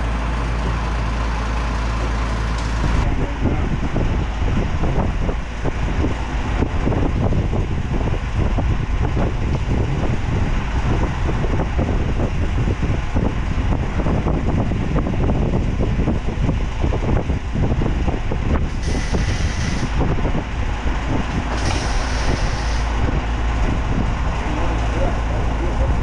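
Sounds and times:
engine low rumble: 0.0 - 26.0
short hissing bursts: 18.7 - 20.0, 21.5 - 23.0.

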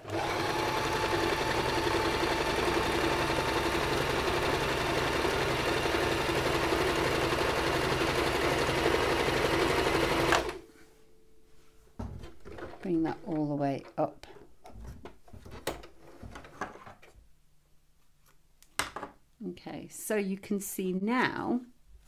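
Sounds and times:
sewing machine running: 0.0 - 10.6.

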